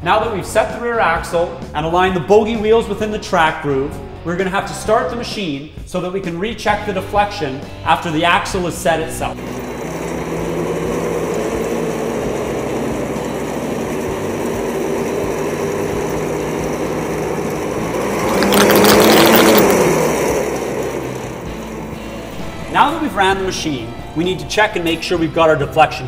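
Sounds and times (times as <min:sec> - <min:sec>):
snowmobile engine revving: 0:09.2 - 0:23.4.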